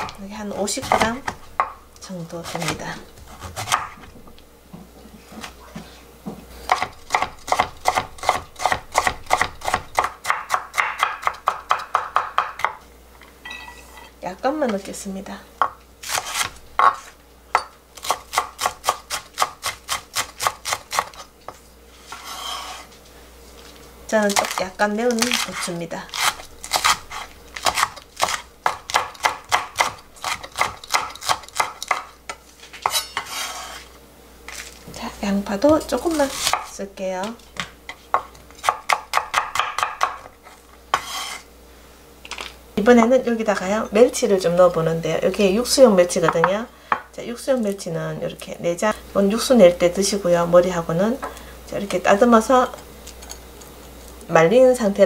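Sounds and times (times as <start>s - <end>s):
knife chopping on wooden board: 0.0s - 1.8s, 2.4s - 4.2s, 6.7s - 12.8s, 15.6s - 21.2s, 26.2s - 32.1s, 37.6s - 40.3s, 40.9s - 41.4s
knife rasping stroke: 22.0s - 22.9s, 32.8s - 33.9s, 40.9s - 41.5s.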